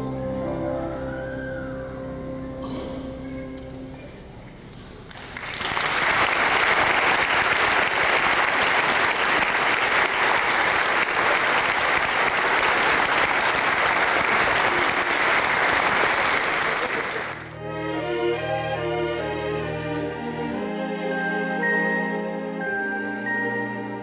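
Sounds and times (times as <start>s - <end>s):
people applauding: 5.1s - 17.6s.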